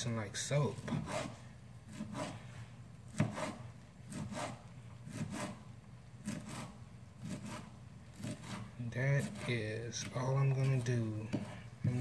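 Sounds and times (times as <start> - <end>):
knife chopping on cutting board: 3.1 - 5.6, 6.2 - 12.0.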